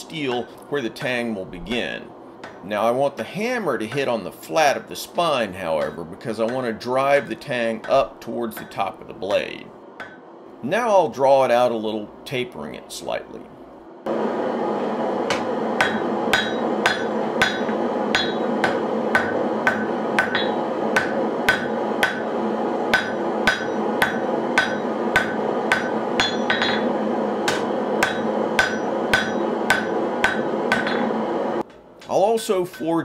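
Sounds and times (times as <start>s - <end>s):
hammer striking steel on anvil: 5.7s - 10.2s, 15.3s - 22.3s, 22.9s - 33.0s.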